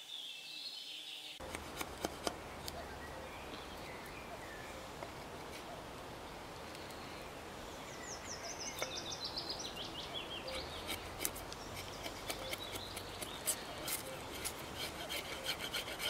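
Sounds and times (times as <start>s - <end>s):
knife shaving wood: 1.4s - 2.8s, 10.5s - 16.0s
songbird trilling: 7.9s - 14.4s.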